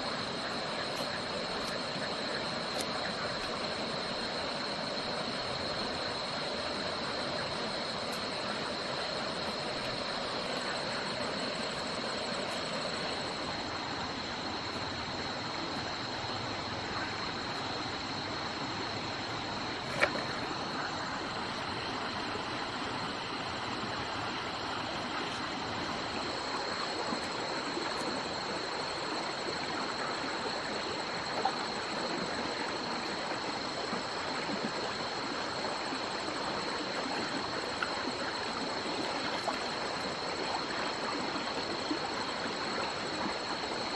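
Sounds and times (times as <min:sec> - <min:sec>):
crickets chirping: 0:00.0 - 0:43.9
stream running over rocks: 0:00.0 - 0:43.9.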